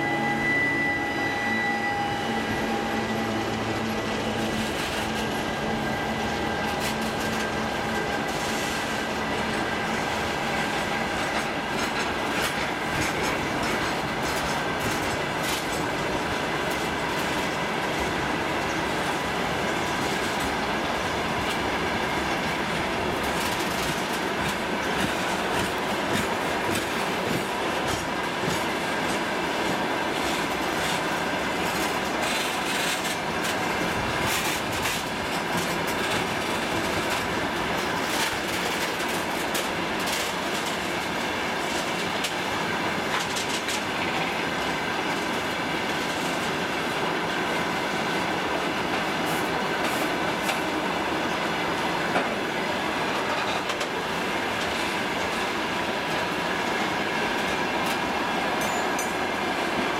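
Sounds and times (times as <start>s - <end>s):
diesel locomotive engine hum: 0.0s - 59.9s
train wheels rumbling on rails: 0.0s - 59.9s
wheels clicking over rail joints: 30.2s - 41.0s.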